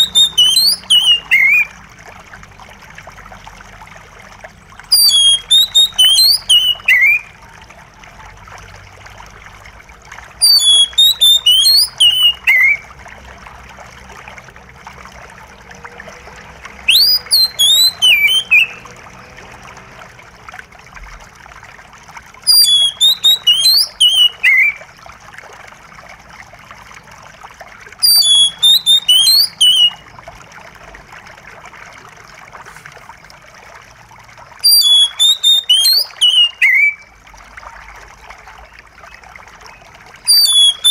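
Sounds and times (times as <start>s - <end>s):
bird singing whistled notes: 0.0s - 1.7s, 4.9s - 7.3s, 10.4s - 12.8s, 16.8s - 18.8s, 22.5s - 24.8s, 28.0s - 30.0s, 34.6s - 37.1s, 40.3s - 40.9s
running water trickling: 0.0s - 40.9s.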